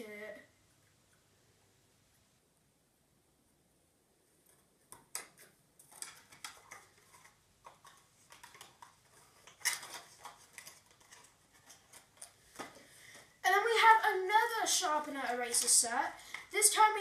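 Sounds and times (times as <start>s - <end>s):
plastic items clicking and tapping: 4.9s - 13.4s.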